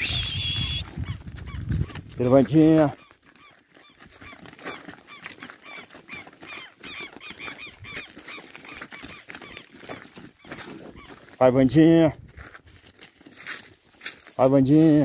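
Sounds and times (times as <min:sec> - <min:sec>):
high chirping animal calls: 0:00.0 - 0:02.2, 0:02.9 - 0:11.3.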